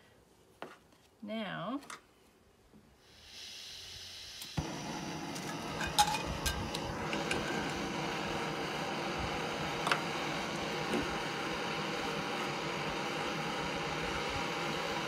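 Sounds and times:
burner igniting whoosh: 3.0s - 15.0s
gas hissing from valve: 3.0s - 15.0s
gas stove roaring: 3.1s - 15.0s.

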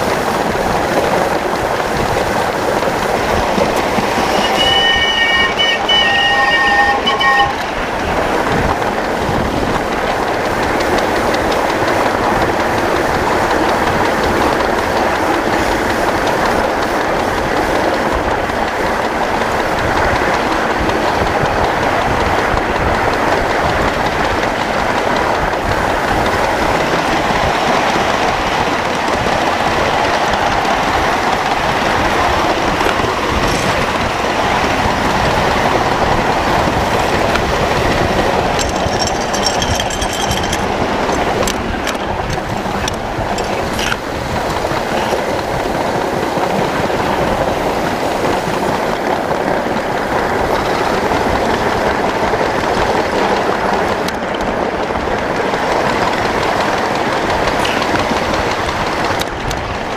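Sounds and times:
clicks of wheels on track: 0.0s - 59.9s
wheels rumbling on rail: 0.0s - 59.9s
high-pitched squeal: 3.8s - 8.0s.

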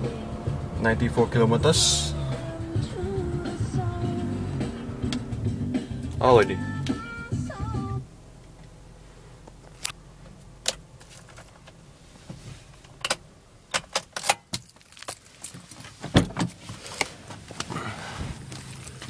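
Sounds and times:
car engine idling hum: 0.0s - 14.0s, 14.8s - 19.0s
car keys jangling: 13.0s - 16.6s, 18.4s - 19.0s.

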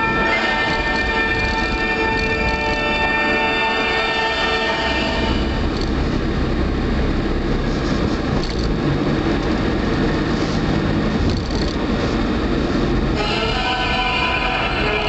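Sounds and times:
car road and engine noise: 0.0s - 14.0s
background music: 13.2s - 15.0s.

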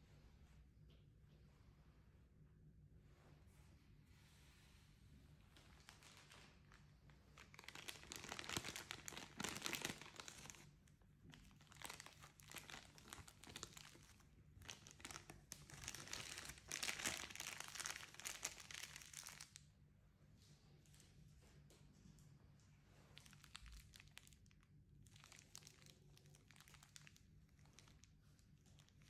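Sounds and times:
plastic packaging crinkling: 5.6s - 19.6s, 23.2s - 29.0s.

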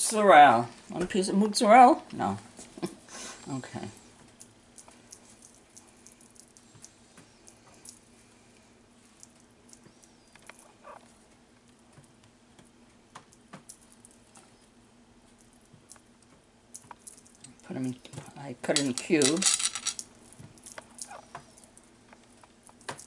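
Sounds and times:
faint steady hum: 0.0s - 23.0s
cheese cubes clicking and patting: 4.2s - 18.3s, 19.4s - 23.0s.

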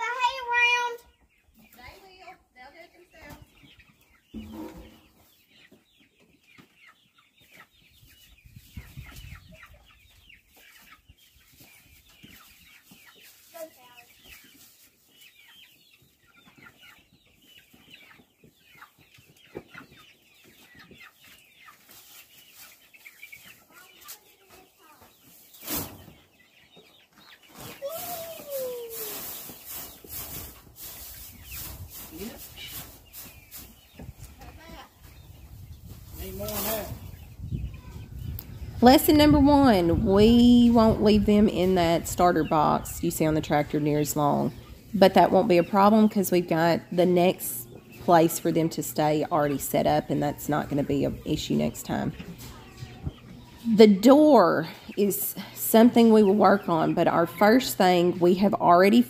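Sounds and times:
chickens clucking and peeping: 0.0s - 59.0s.

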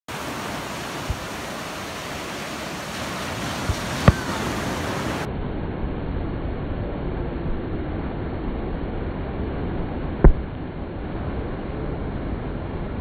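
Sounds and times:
steady rushing hiss: 0.1s - 5.3s
fireworks thumping: 3.5s - 4.6s.

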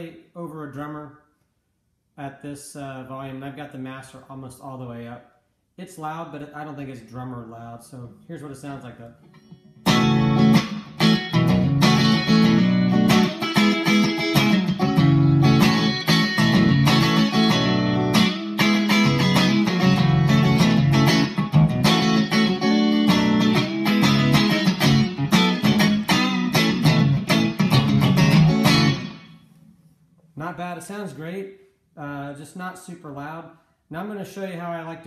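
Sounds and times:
clean electric guitar funk groove: 9.4s - 29.3s.

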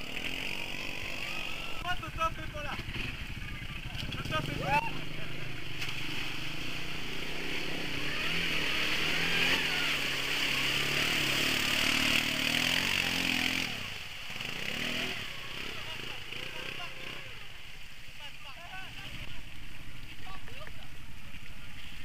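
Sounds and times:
quad bike engine revving: 0.0s - 17.6s.

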